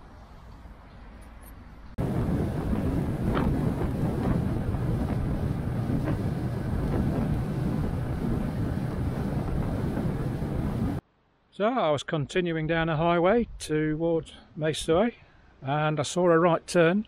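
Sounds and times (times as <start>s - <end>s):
motorcycle engine and road noise: 1.8s - 11.0s
wind rushing over microphone: 2.0s - 11.0s.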